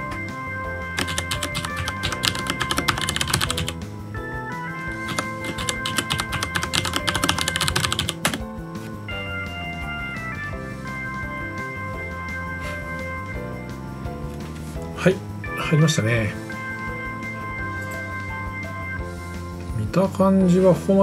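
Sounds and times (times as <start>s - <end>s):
background music with held notes: 0.0s - 21.0s
fast typing on keyboard: 0.9s - 3.8s, 4.9s - 8.4s.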